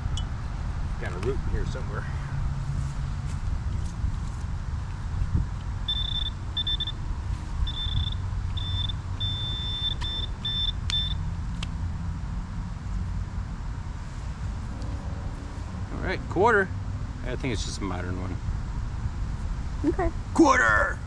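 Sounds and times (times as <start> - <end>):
steady low rumble: 0.0 - 21.0
metal detector beeping: 5.9 - 7.0, 7.6 - 11.2
sharp clicks: 9.9 - 11.8.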